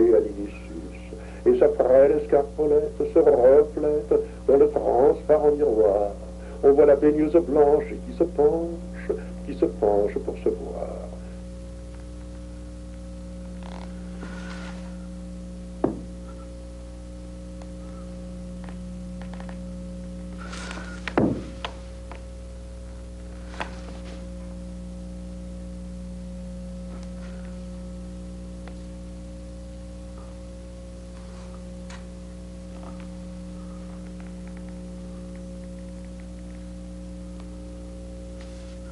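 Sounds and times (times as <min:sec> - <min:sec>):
steady low hum: 0:00.0 - 0:38.9
soft rustles: 0:13.5 - 0:15.0, 0:23.3 - 0:24.4, 0:38.4 - 0:38.9
thumps on wooden floor: 0:15.8 - 0:16.1, 0:21.1 - 0:21.7.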